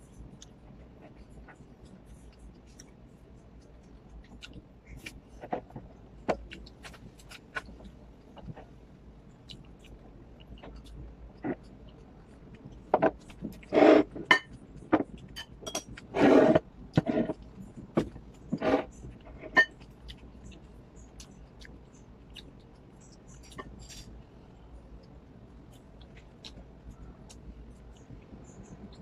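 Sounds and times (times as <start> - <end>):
faint ticks of eating: 0.0 - 29.0
porcelain dishes clinking: 15.4 - 16.0
dishes scraping on table: 15.7 - 17.4.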